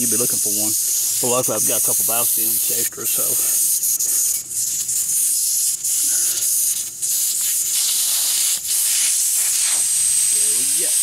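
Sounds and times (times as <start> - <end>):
air hissing out of tire valve: 0.0 - 10.9.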